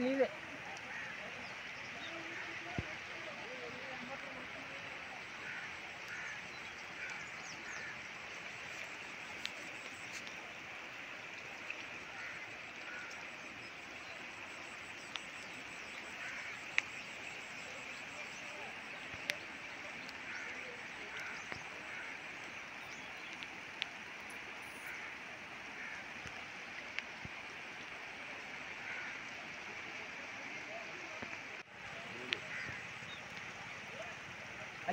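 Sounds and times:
floodwater rushing: 0.0s - 34.9s
faint bird calls: 5.2s - 10.7s, 11.3s - 25.2s, 28.8s - 29.6s, 32.0s - 34.9s.

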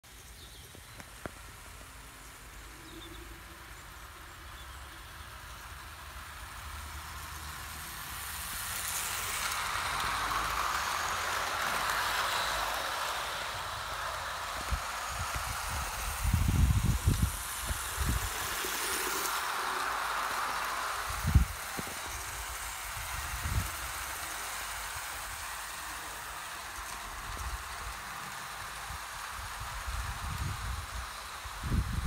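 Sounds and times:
model train wheels rattling: 4.9s - 32.0s.

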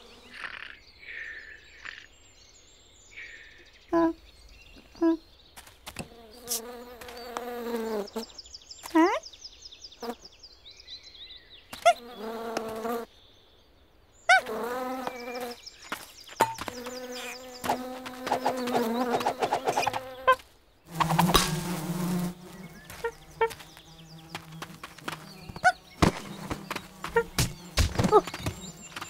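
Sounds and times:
cartoon bee buzzing: 6.0s - 8.2s, 11.8s - 13.1s, 14.3s - 29.0s.

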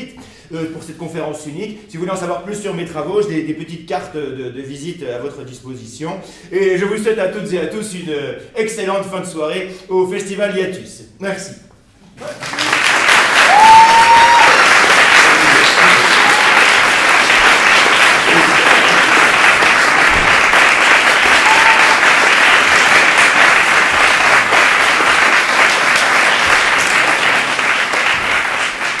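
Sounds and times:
audience applauding: 12.2s - 29.0s.

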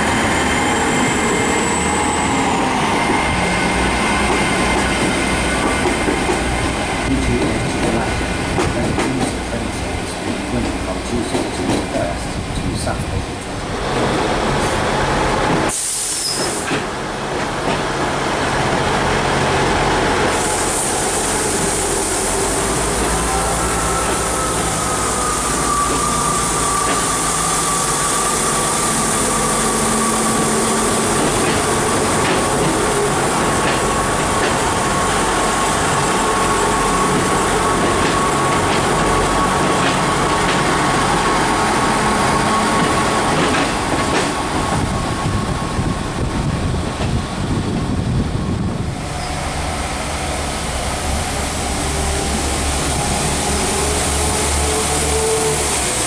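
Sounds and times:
train rumble: 0.0s - 56.0s
train whine falling in pitch: 20.2s - 43.7s.

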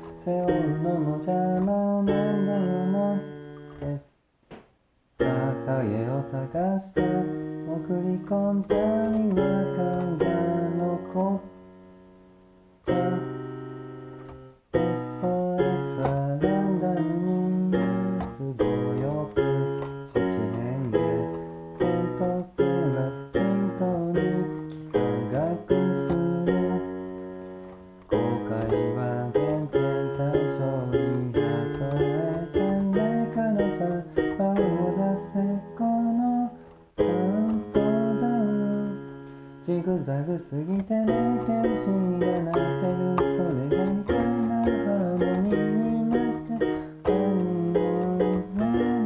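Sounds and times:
electronic keyboard playing pop melody: 0.0s - 4.0s, 5.2s - 49.0s
person singing: 0.0s - 4.1s, 5.2s - 11.6s, 12.8s - 49.0s
guitar: 12.8s - 49.0s.

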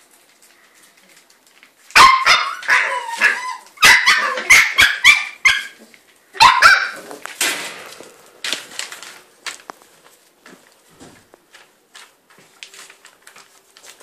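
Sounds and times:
puppy barking: 2.0s - 5.8s, 6.4s - 7.1s.

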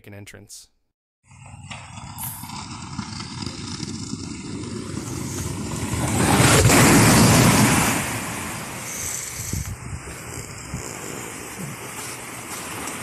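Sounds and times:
inner tube rumbling down slide: 1.4s - 13.0s.

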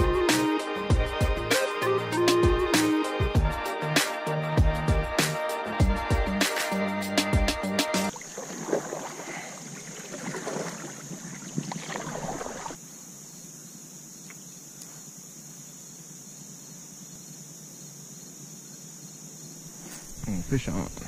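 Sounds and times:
background music: 0.0s - 8.1s
paddle strokes: 8.1s - 12.8s
water splashes: 8.1s - 12.8s
insects chirring: 8.1s - 21.0s
rustling plants: 19.7s - 21.0s.

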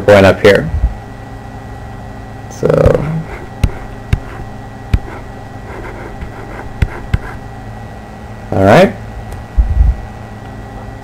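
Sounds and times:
steady electrical hum: 0.0s - 11.0s
stylus tapping on tablet: 3.6s - 5.2s, 6.2s - 7.4s.

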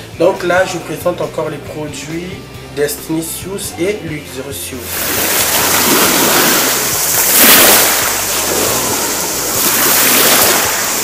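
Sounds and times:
shallow seawater splashing: 4.9s - 11.0s.

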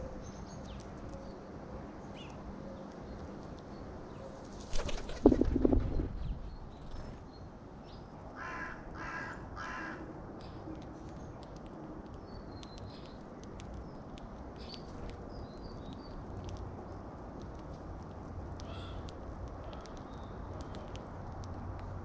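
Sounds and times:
crow cawing: 8.4s - 10.1s.

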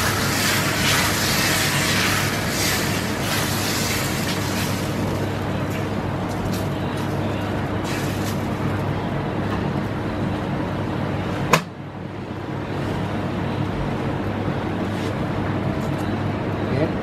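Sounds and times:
batter sizzling on griddle: 0.0s - 8.8s.

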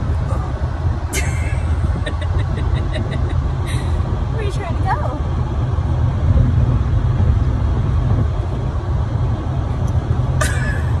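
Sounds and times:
car cabin road and engine rumble: 0.0s - 11.0s.

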